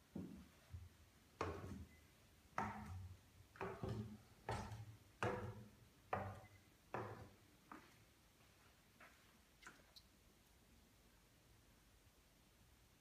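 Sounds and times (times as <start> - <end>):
footsteps on wooden stairs: 3.6 - 7.9.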